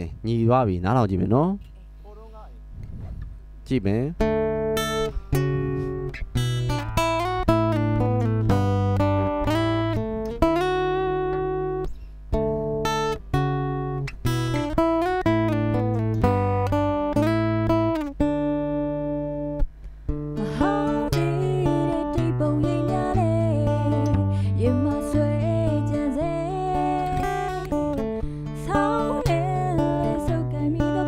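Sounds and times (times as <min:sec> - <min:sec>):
guitar chords picked and strummed: 0:04.2 - 0:31.0
person singing: 0:20.4 - 0:27.9, 0:28.6 - 0:31.0.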